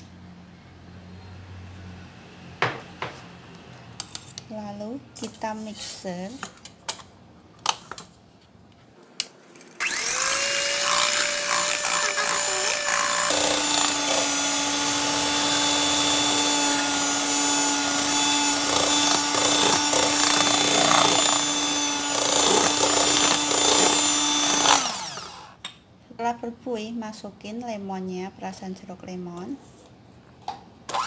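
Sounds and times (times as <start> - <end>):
electric hand mixer whining: 9.8 - 25.6.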